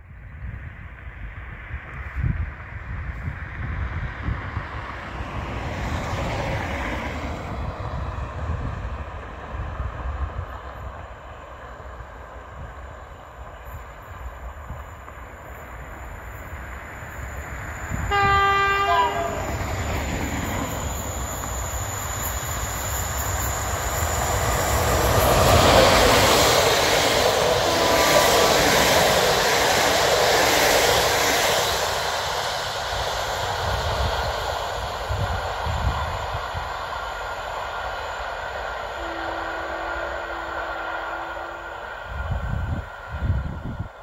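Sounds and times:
train wheels on rails: 0.0s - 44.0s
locomotive horn: 18.1s - 19.6s, 27.6s - 28.2s, 38.9s - 41.8s.

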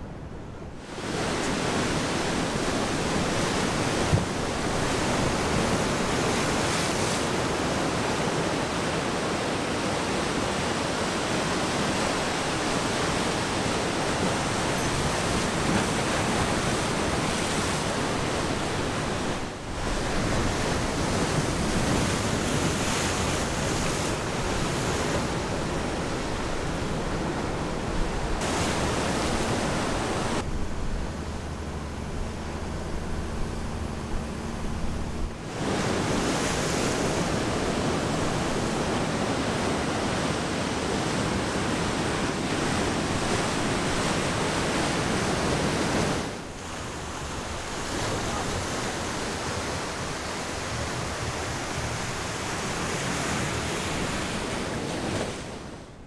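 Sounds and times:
ocean surf breaking: 0.0s - 56.0s.

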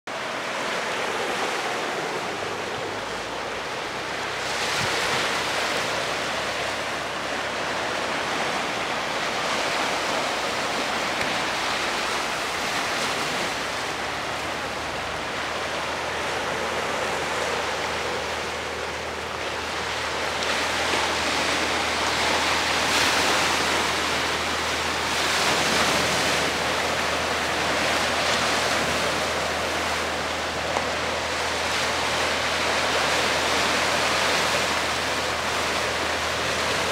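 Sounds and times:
ocean surf breaking on rocks: 0.1s - 36.9s.

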